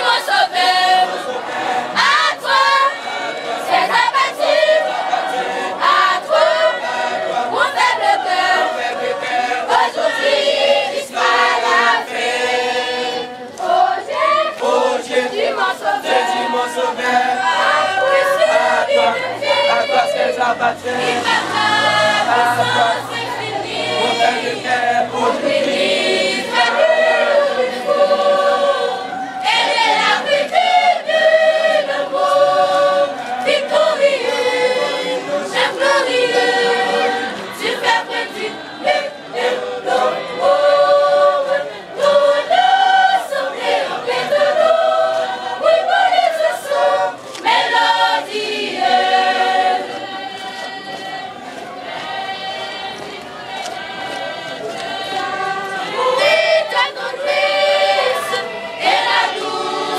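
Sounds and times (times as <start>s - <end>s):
choir singing a gospel hymn: 0.0s - 59.9s.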